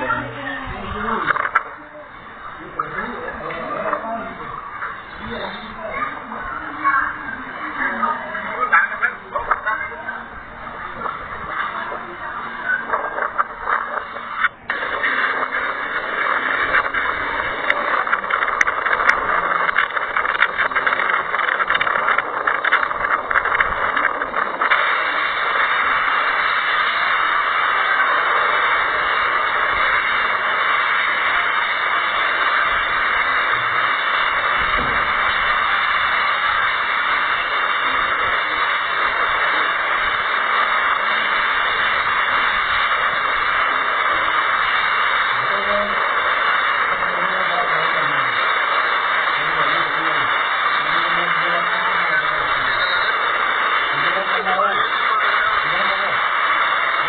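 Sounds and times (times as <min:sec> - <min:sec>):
driving rain: 0:00.0 - 0:57.0
strong wind: 0:12.9 - 0:45.3.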